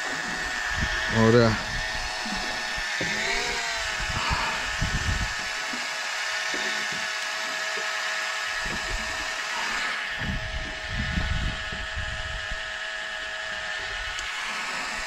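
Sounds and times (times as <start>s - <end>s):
low rumbles: 0.0s - 5.6s
electric fishing reel motor whining: 0.0s - 15.0s.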